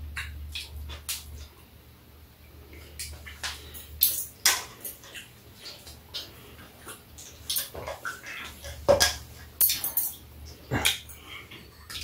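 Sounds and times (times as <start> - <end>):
chewing and mouth noises: 2.5 - 12.0.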